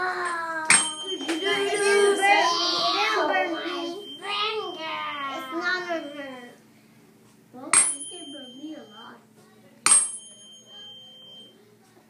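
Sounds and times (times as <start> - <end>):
tuning fork ringing: 7.8 - 9.2, 9.9 - 11.6.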